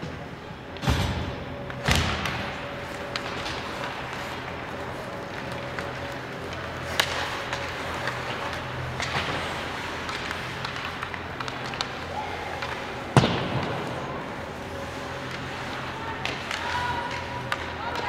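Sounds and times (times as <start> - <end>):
hockey sticks and puck clicking: 1.6 - 18.0
loud bang echoing in arena: 13.1 - 14.1.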